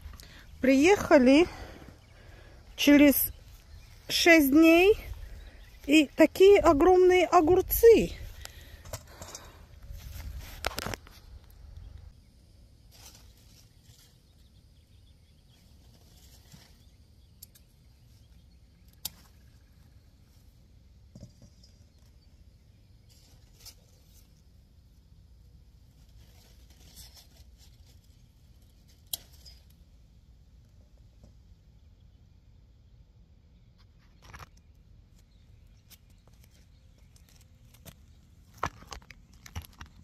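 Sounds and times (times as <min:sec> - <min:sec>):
vines snapping and clicking: 0:10.6 - 0:12.0, 0:18.8 - 0:19.5, 0:28.9 - 0:29.6, 0:35.8 - 0:40.0
leaves rustling: 0:12.8 - 0:14.5, 0:23.0 - 0:24.5, 0:25.8 - 0:29.7.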